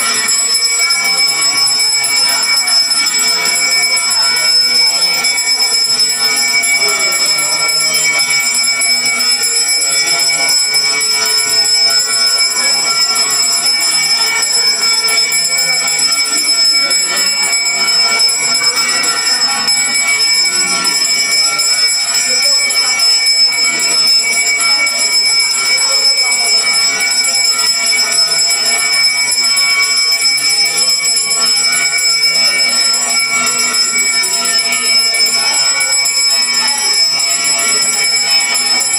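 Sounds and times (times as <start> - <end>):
hand bell ringing: 0.0 - 38.9.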